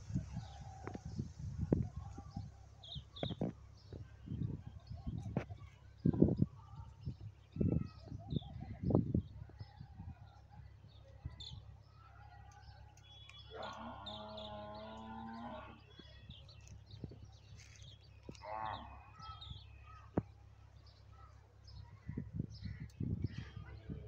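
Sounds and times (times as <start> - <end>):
small birds chirping: 0.0 - 24.0
cow mooing: 13.5 - 15.8.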